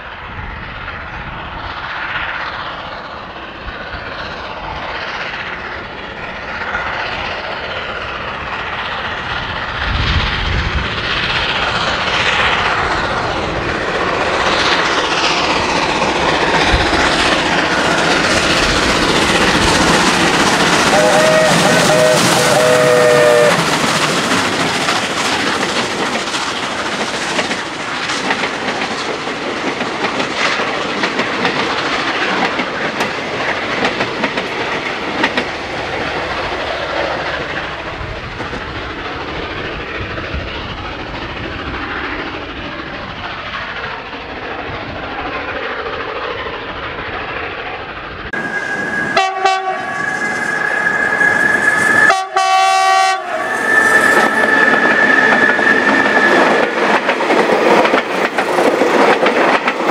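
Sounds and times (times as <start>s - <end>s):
train wheels clicking over rail joints: 0.8s - 59.9s
steam locomotive whistle: 20.4s - 24.1s, 48.4s - 56.8s
high horn-like tone: 20.9s - 23.6s, 48.6s - 56.4s.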